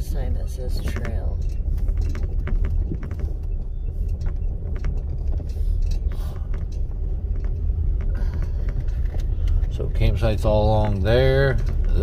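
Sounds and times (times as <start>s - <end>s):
vehicle rolling on gravel: 0.0s - 12.0s.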